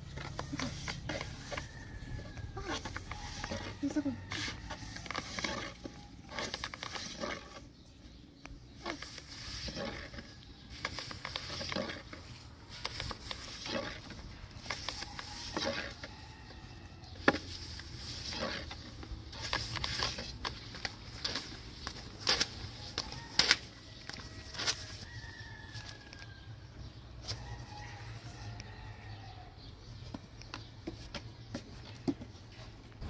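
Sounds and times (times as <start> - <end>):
rolling pin on wooden board: 0.1 - 7.6, 8.8 - 12.2, 12.8 - 16.1.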